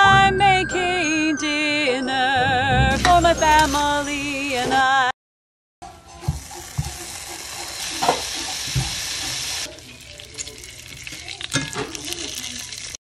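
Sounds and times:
hot dogs sizzling in oil: 0:03.0 - 0:04.7, 0:05.8 - 0:13.0.

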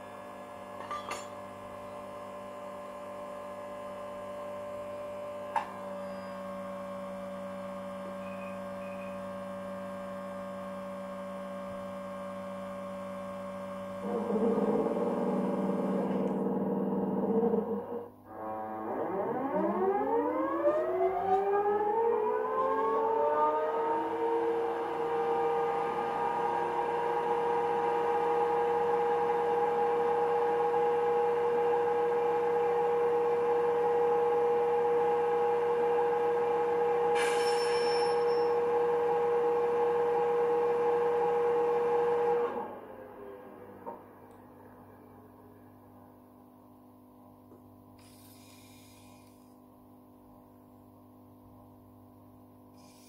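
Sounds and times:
electric locomotive whine: 0:00.0 - 0:45.6.

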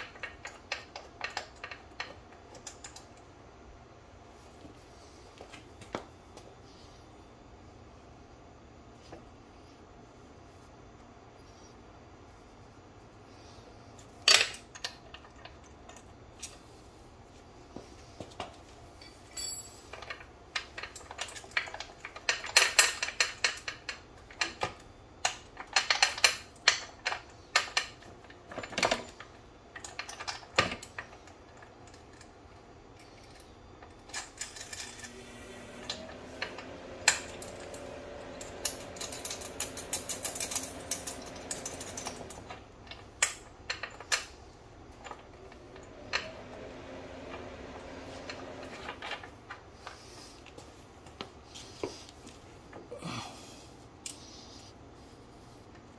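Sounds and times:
faint steady hum: 0:00.0 - 0:55.9
motorcycle chain clicking and rattling: 0:36.5 - 0:44.4.

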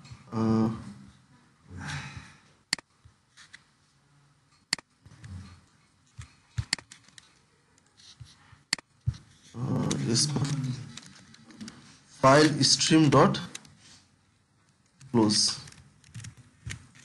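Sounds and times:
computer mouse clicks: 0:06.2 - 0:07.9.

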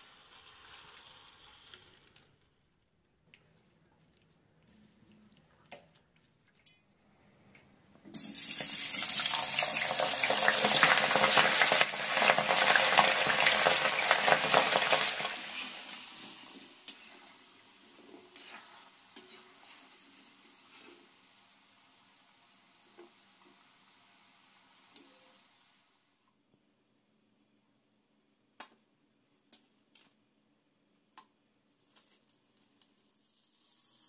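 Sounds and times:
potatoes sizzling in hot oil: 0:00.0 - 0:02.2, 0:08.2 - 0:25.9, 0:33.1 - 0:34.0.

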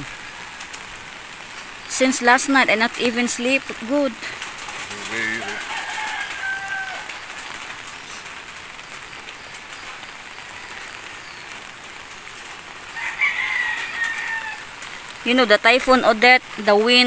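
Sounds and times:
steady rain falling: 0:00.0 - 0:17.0
rooster crowing: 0:05.1 - 0:07.6, 0:12.9 - 0:14.8.

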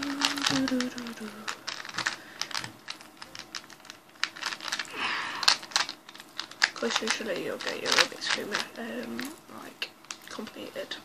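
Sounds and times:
person speaking: 0:00.0 - 0:03.6, 0:06.6 - 0:11.0
plastic cube clicking: 0:00.0 - 0:09.4.

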